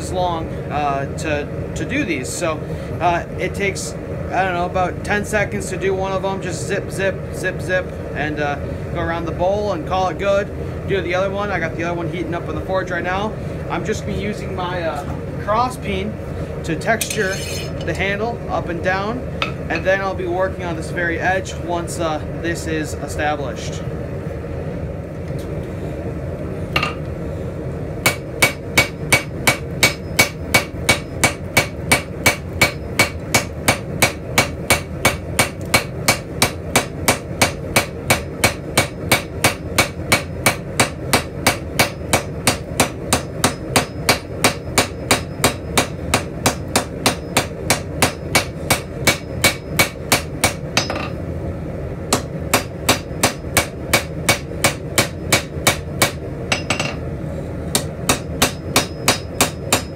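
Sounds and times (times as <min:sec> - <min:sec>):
steady low hum: 0:00.0 - 0:59.9
hammer striking metal on anvil: 0:17.0 - 0:17.9, 0:19.4 - 0:19.9, 0:26.8 - 0:27.0, 0:28.0 - 0:51.2, 0:52.1 - 0:57.1, 0:57.7 - 0:59.9.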